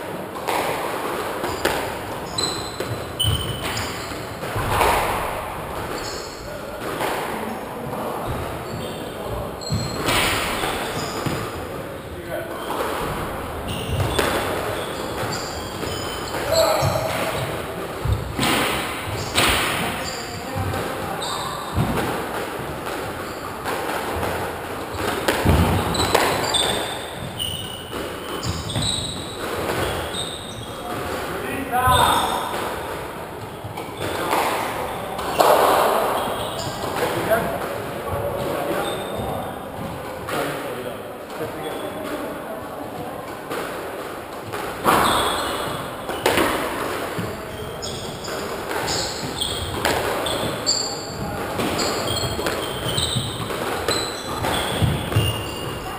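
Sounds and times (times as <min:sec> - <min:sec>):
squash ball thuds: 0:00.4 - 0:11.9, 0:12.6 - 0:40.5, 0:42.9 - 0:55.9
shoe squeaks: 0:01.4 - 0:06.8, 0:07.5 - 0:22.4, 0:23.0 - 0:39.9, 0:41.4 - 0:42.2, 0:44.8 - 0:55.9
squash ball knocks: 0:02.8 - 0:06.0, 0:21.7 - 0:30.2, 0:44.4 - 0:47.4, 0:51.2 - 0:55.9.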